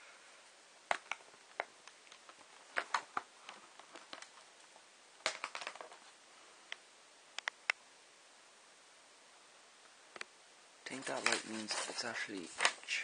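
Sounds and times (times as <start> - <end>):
plastic packaging handling clicks: 0.9 - 4.4, 5.2 - 6.0, 10.9 - 13.0.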